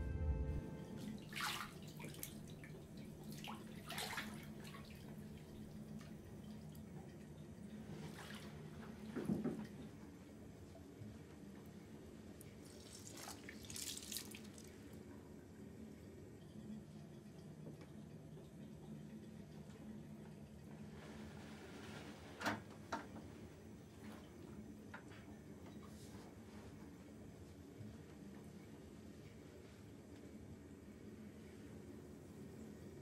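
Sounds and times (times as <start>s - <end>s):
low steady hum: 0.0s - 22.0s
water splashing and dripping: 1.0s - 6.2s, 12.7s - 14.8s.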